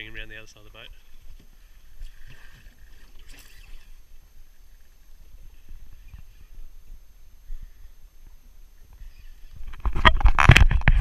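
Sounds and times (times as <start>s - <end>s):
water lapping against boat hull: 0.6s - 6.8s.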